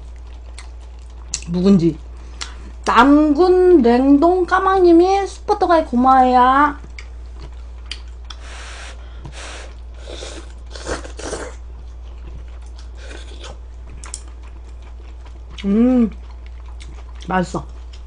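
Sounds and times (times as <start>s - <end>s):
person chewing food: 0.0s - 2.8s, 6.8s - 18.0s
low electrical hum: 0.0s - 18.0s.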